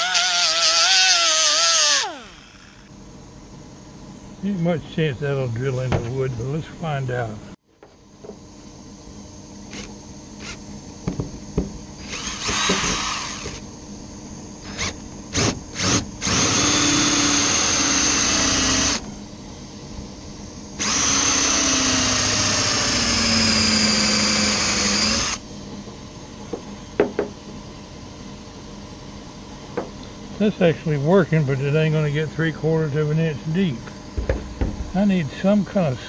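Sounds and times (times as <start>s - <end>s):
cordless drill cutting wood: 0.0s - 2.9s, 12.0s - 13.6s, 14.6s - 19.0s, 20.8s - 25.4s.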